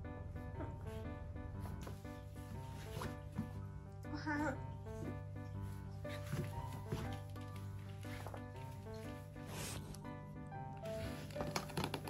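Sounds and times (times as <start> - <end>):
background music sustained notes: 0.0 - 12.0.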